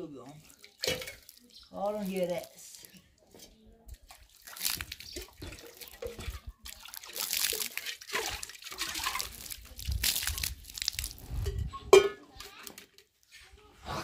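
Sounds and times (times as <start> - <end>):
water splashing onto concrete: 0.3 - 3.0, 3.9 - 11.3.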